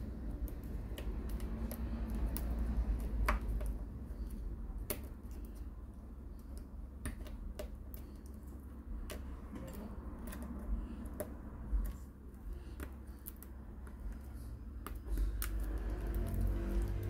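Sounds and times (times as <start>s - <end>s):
steady low hum: 0.0s - 17.0s
metal tweezers clicking on plastic: 0.4s - 5.6s.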